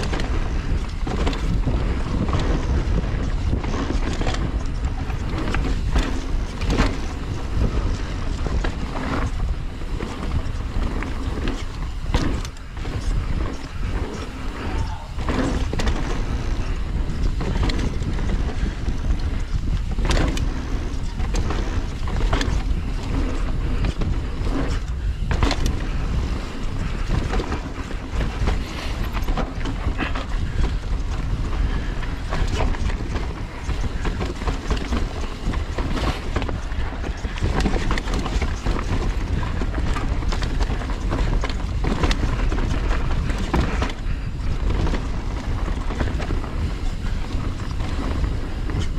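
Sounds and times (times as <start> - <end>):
bike knocks and rattles: 0.0 - 48.9
tyre rumble: 0.0 - 48.9
wind on microphone: 0.0 - 48.9.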